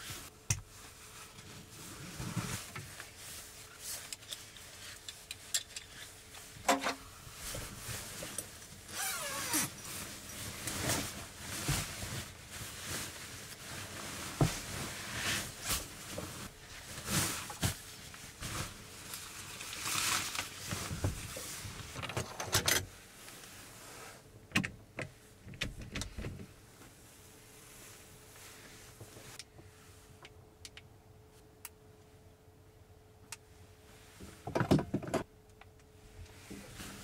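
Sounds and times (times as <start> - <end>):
sleeping bag rustling: 7.3 - 21.7.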